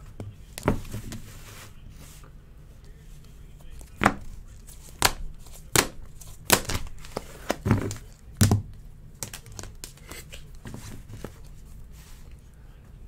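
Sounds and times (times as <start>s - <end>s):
cards shuffling: 3.7s - 8.6s, 9.2s - 12.4s.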